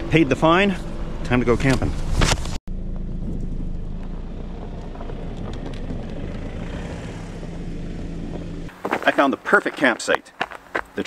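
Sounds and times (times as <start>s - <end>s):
car engine hum: 0.0s - 11.0s
tyre noise on snow: 8.7s - 11.0s.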